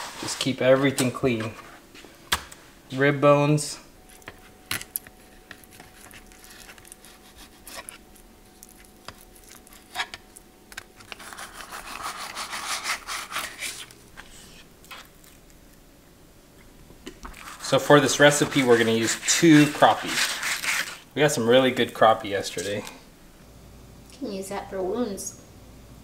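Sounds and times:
knife scraping cutting board: 5.4s - 10.2s, 11.0s - 15.1s, 17.3s - 21.0s.

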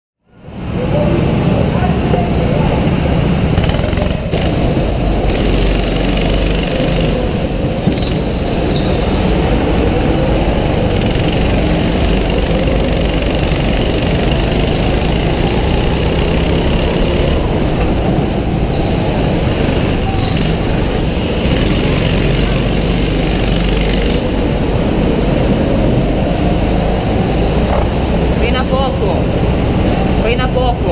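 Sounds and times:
go-kart engine running hard: 0.3s - 30.9s.

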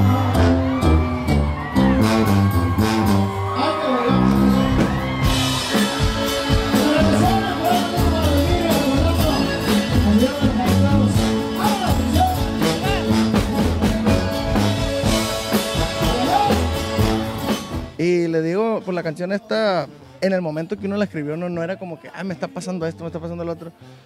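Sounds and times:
accordion melody: 0.0s - 18.0s
tuba bass line: 0.0s - 18.0s.

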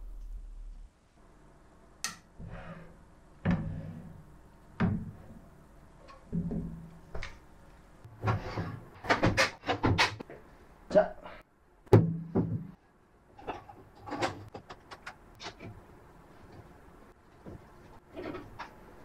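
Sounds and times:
objects knocking and clunking: 3.4s - 7.4s, 8.0s - 10.5s, 11.9s - 15.8s.

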